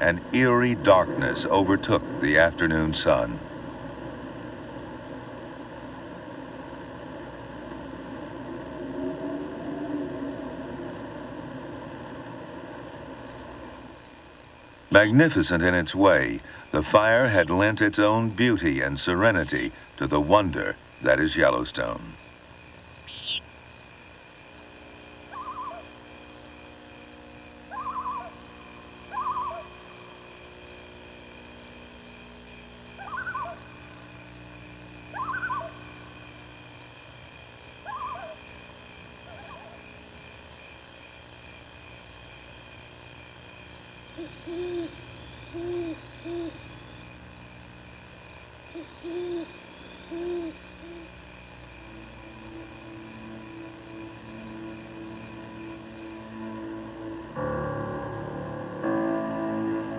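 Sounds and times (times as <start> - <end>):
crickets chirring: 0.0 - 59.9
owl hooting: 23.0 - 23.5, 25.3 - 26.0, 27.7 - 30.1, 33.0 - 33.9, 35.1 - 36.2, 37.8 - 38.6, 39.2 - 39.9, 44.1 - 47.0, 48.6 - 55.8
short high bird calls: 29.1 - 29.8, 35.1 - 35.8.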